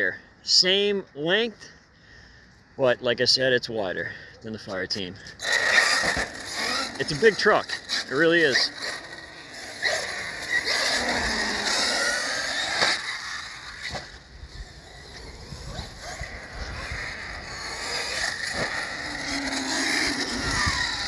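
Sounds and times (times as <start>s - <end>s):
rc truck motor whine: 5.3s - 21.0s.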